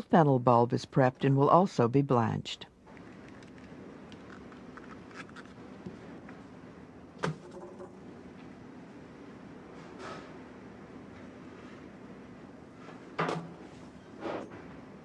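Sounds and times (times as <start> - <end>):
steady low hum: 2.6 - 15.0.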